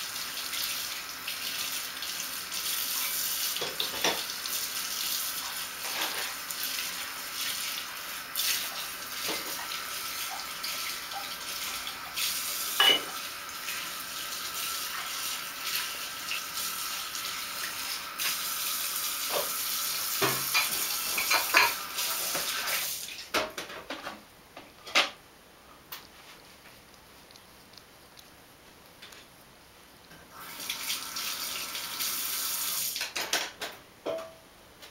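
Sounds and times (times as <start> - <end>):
tap water running: 0.0 - 23.6, 30.1 - 33.6
dishes and cutlery clinking: 12.8 - 13.2, 20.2 - 21.8.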